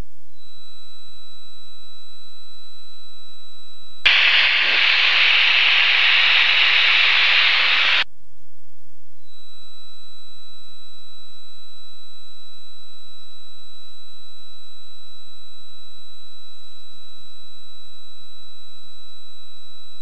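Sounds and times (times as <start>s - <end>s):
electronic beep tone: 4.1s - 8.0s
small plane cockpit noise hiss: 4.1s - 8.0s.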